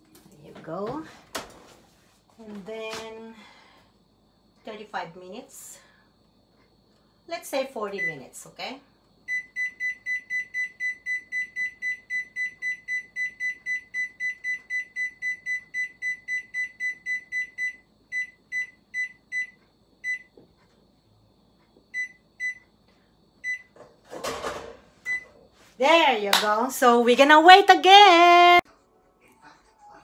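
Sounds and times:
oven control panel beeping: 9.3s - 20.4s, 21.9s - 22.7s, 23.4s - 23.8s.

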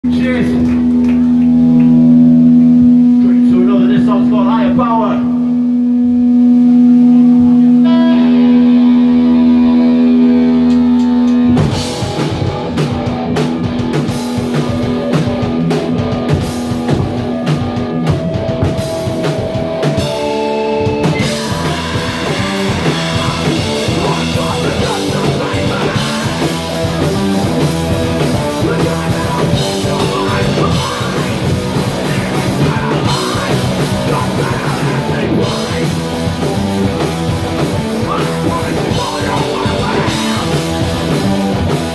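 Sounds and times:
rock band playing: 0.0s - 41.9s
held guitar note ringing: 5.4s - 11.9s
vocalist singing or shouting: 21.2s - 27.3s, 28.0s - 36.2s, 37.6s - 41.2s.

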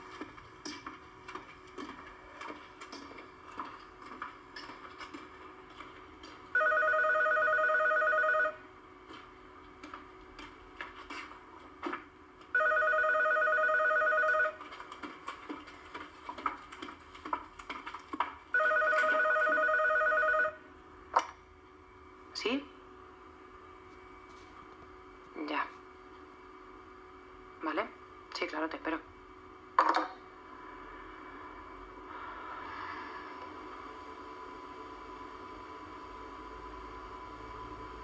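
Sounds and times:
telephone ringing: 6.5s - 8.7s, 12.5s - 14.8s, 18.5s - 20.7s.

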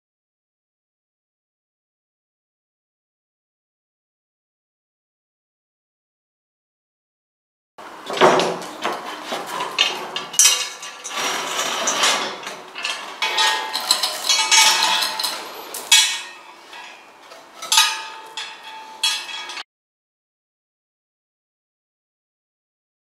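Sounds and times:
sheet metal clanking: 8.0s - 19.6s
hoist chain rattling: 9.5s - 19.6s.

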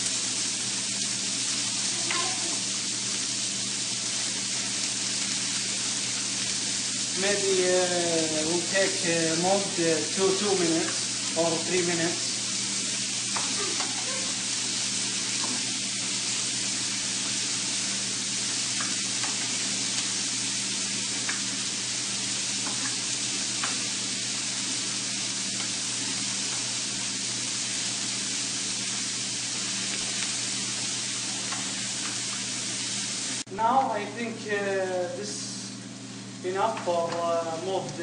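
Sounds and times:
onions sizzling in hot oil: 0.0s - 38.0s.

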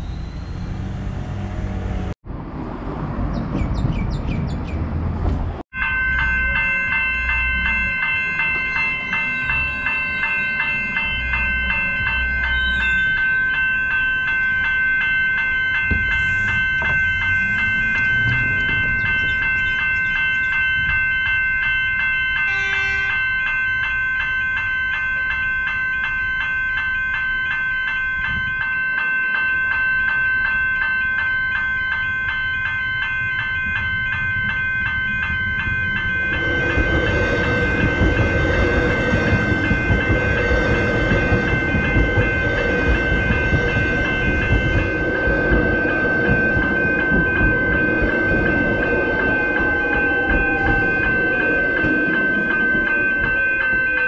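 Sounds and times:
level crossing warning bells: 0.0s - 2.2s, 5.7s - 54.0s
train wheels on rails: 6.2s - 25.8s, 32.0s - 54.0s.

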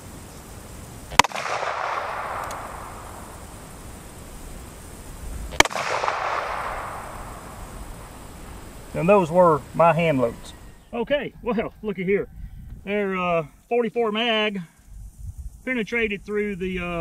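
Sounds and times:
revolver shots: 1.1s - 3.6s, 5.5s - 8.3s
gunshot echo rolling: 1.1s - 3.8s, 5.5s - 8.6s.

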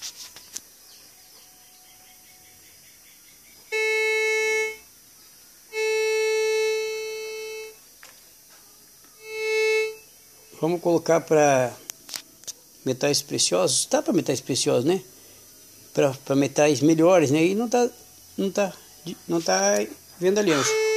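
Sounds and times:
metal detector buzzy tones: 3.7s - 4.8s, 5.7s - 7.8s, 9.2s - 10.1s, 20.4s - 20.9s.

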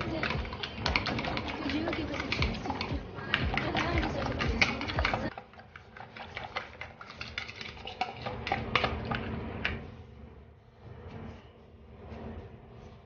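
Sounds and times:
spoon beating eggs in bowl: 0.0s - 9.4s.

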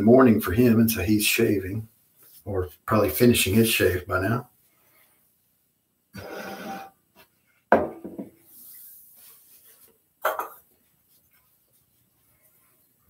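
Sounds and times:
faint rustling hiss: 0.0s - 7.7s, 8.3s - 13.0s
objects knocking on hard surface: 7.7s - 8.4s, 10.2s - 10.6s.

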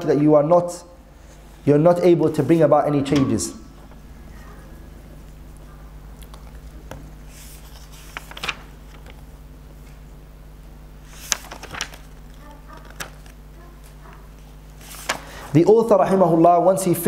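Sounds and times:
steady low hum: 0.0s - 17.0s
book pages rustling: 5.2s - 10.0s, 11.0s - 15.4s
book clicks: 11.2s - 13.4s.

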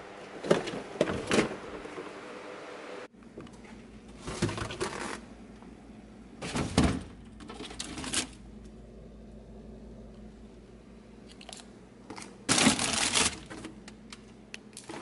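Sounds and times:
low steady hum: 0.0s - 15.0s
plastic packaging rustling: 12.1s - 13.7s.

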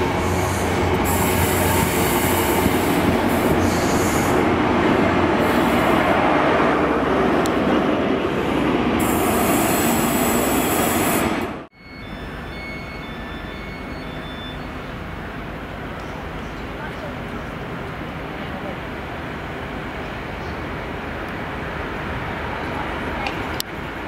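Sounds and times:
high wheel squeal: 0.0s - 4.4s, 9.0s - 15.0s
train wheels rumbling on rail: 0.0s - 11.7s, 12.8s - 24.0s
distant freight train running: 0.0s - 24.0s.

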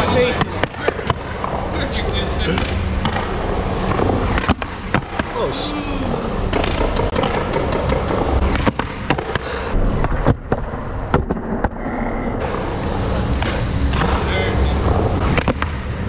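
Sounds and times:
skateboard clacking on ground: 0.0s - 5.4s, 6.4s - 11.8s
skateboard wheels rolling on concrete: 0.0s - 16.0s.

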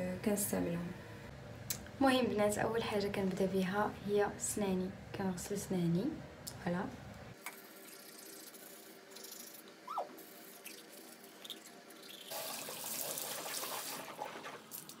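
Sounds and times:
toothbrush scrubbing teeth: 7.5s - 12.4s.

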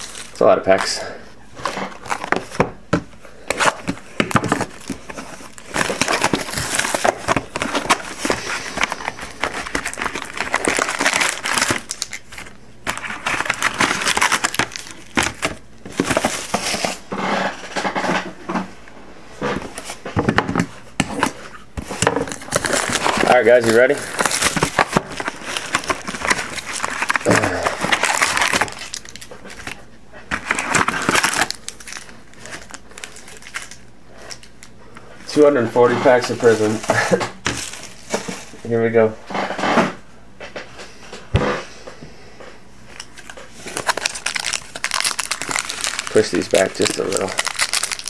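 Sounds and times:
wrappers crinkling: 0.0s - 2.6s, 3.5s - 17.0s, 22.0s - 34.7s, 43.0s - 48.0s.

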